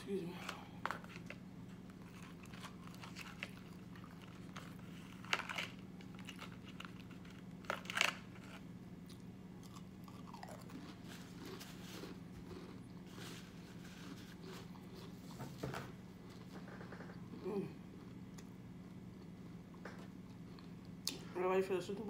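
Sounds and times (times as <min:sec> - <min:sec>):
low steady hum: 0:00.0 - 0:22.0
person crunching crisps: 0:00.8 - 0:15.2.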